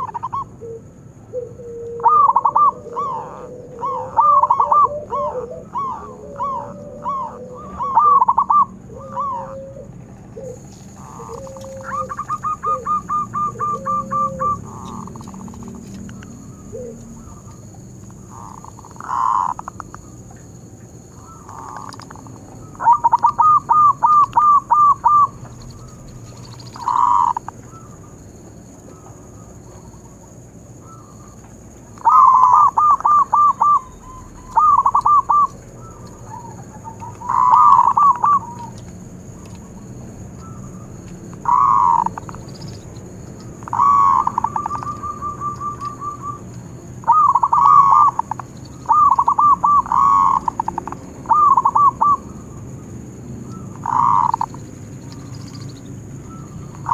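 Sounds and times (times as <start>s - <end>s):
dove cooing: 0.0s - 20.3s, 21.1s - 28.2s, 28.8s - 52.7s, 53.4s - 56.9s.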